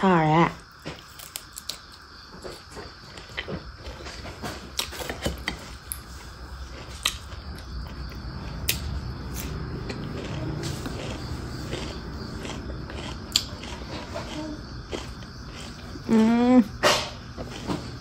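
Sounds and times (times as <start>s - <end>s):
chewing with wet mouth clicks: 4.7s - 16.1s.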